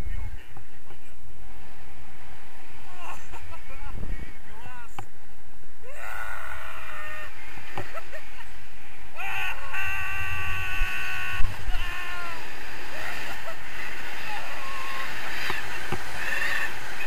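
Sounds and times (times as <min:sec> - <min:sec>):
wind rushing over microphone: 0:00.0 - 0:17.0
person yelling: 0:05.8 - 0:07.4, 0:09.2 - 0:12.4, 0:14.2 - 0:16.8.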